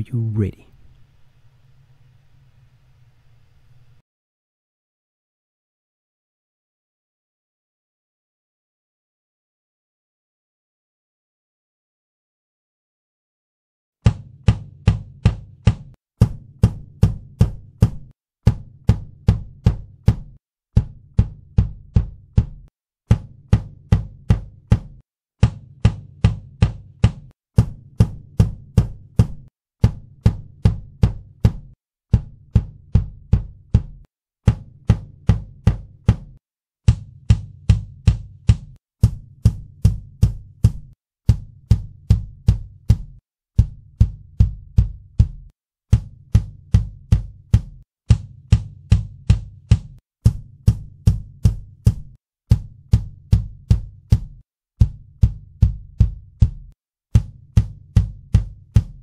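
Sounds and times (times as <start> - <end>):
kick drum hits: 14.1 - 59.0.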